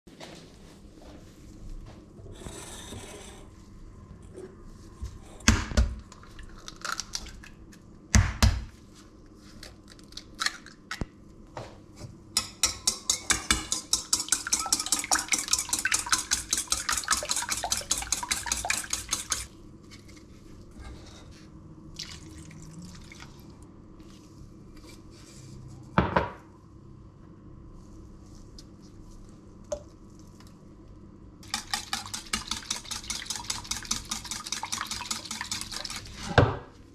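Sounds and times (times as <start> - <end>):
whisk beating eggs in metal bowl: 12.4 - 19.5, 31.4 - 36.2.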